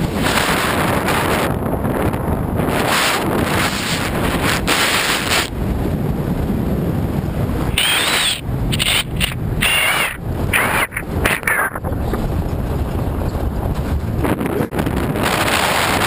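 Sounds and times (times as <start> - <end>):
wind buffeting microphone: 0.0 - 16.0
vehicle rumbling on gravel: 10.2 - 16.0.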